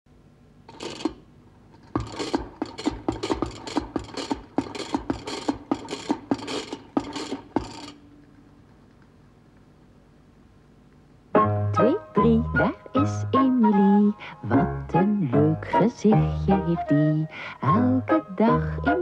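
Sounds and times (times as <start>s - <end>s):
spinning top humming: 0.7s - 8.0s.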